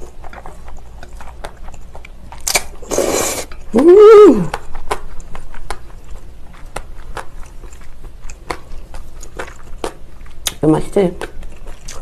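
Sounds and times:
chewing noodles: 0.0 - 12.0.

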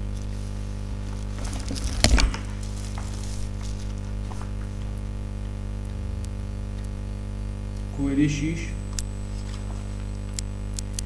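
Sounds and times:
electrical mains hum: 0.0 - 11.0
paper crackling: 0.1 - 5.1, 9.2 - 11.0.

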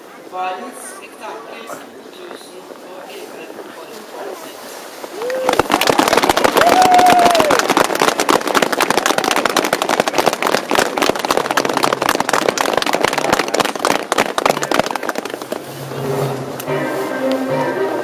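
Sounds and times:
crowd applauding: 5.1 - 15.6
music: 15.8 - 18.0.

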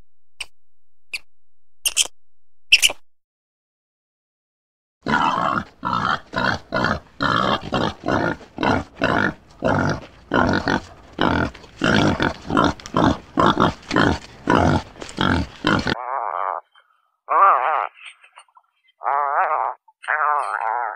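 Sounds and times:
wild boar grunting: 5.0 - 16.6.

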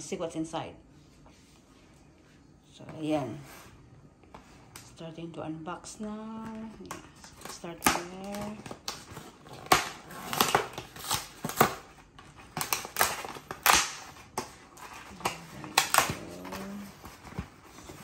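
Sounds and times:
cardboard box tearing open: 8.6 - 11.9.

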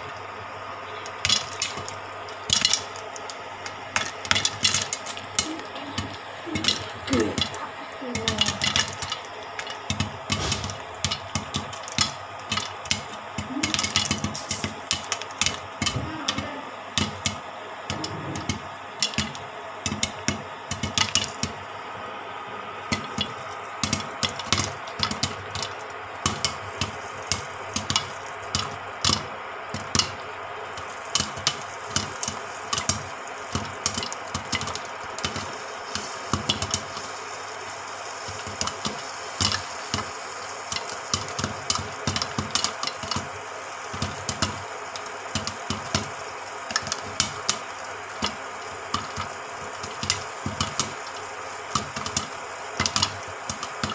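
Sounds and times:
steady hum: 0.0 - 20.7
popcorn popping: 0.0 - 53.9.

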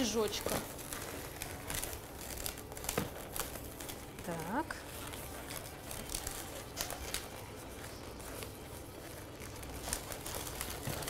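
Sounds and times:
balloons rubbing and creaking: 0.0 - 11.0.

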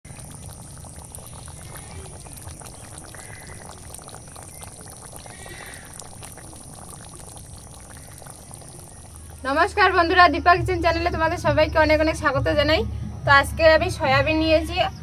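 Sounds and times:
curry bubbling in a pot: 0.0 - 10.2.

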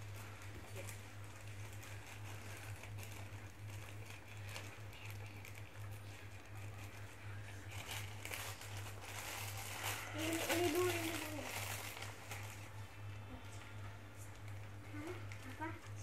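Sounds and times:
plastic mailer crinkling: 0.0 - 12.8, 14.2 - 16.0
steady low hum: 0.0 - 16.0.

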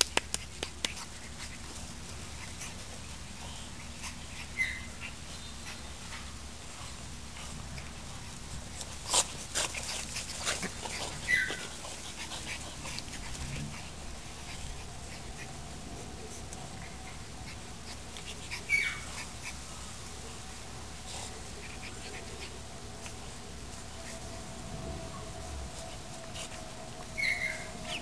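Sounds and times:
puppy yips and snaps: 0.0 - 1.1
puppy yelps: 11.1 - 11.7, 18.5 - 19.3, 27.2 - 28.0.

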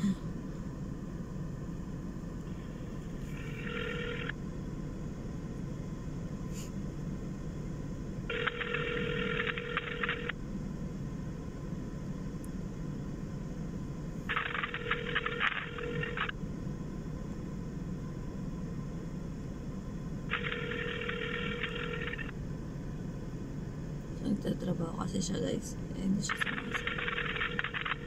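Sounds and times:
low hum in car cabin: 0.0 - 28.0
phone ringback tone: 3.2 - 4.4, 8.3 - 10.3, 14.3 - 16.3, 20.3 - 22.3, 26.7 - 28.0.

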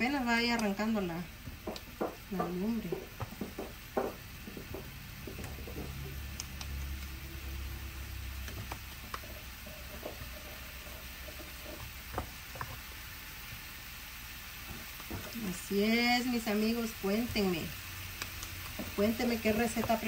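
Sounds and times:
meatballs sizzling in a pan: 0.0 - 20.0
small pops and crackles: 0.4 - 10.3, 11.3 - 12.9, 18.1 - 20.0.

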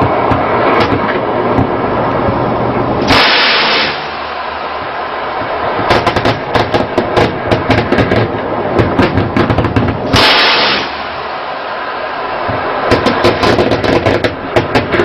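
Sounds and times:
loud rush of noise: 0.0 - 15.0
steady background noise: 0.0 - 15.0
machine-gun fire: 3.1 - 4.1, 5.9 - 11.0.

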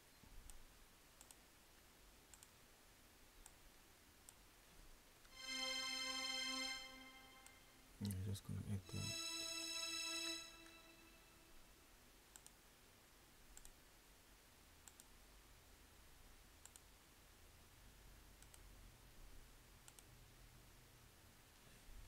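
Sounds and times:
faint mouse clicks: 1.2 - 2.6, 3.4 - 4.4, 12.3 - 12.6, 13.5 - 13.8, 14.8 - 15.2, 16.6 - 17.0, 18.4 - 18.7, 19.8 - 20.2
held synth tone: 5.3 - 7.9, 8.8 - 11.6.

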